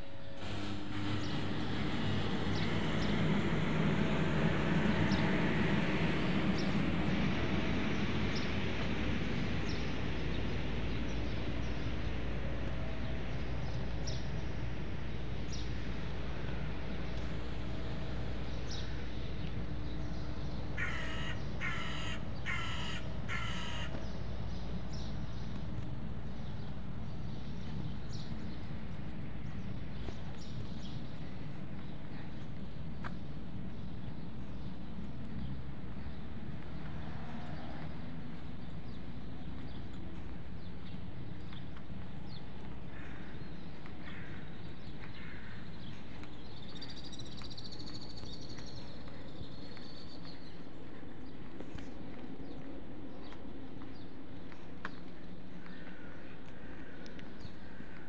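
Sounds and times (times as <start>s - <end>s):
street background noise: 0.0s - 58.0s
vehicle passing: 0.4s - 10.1s, 35.5s - 41.2s
crow cawing: 20.8s - 24.0s.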